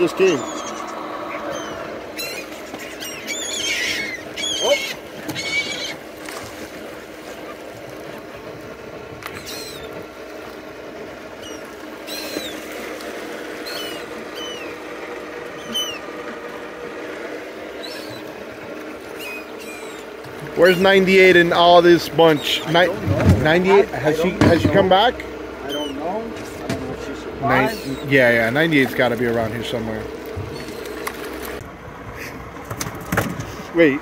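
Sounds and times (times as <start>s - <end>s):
steady low hum: 0.0s - 34.0s
dog whining: 0.4s - 6.0s.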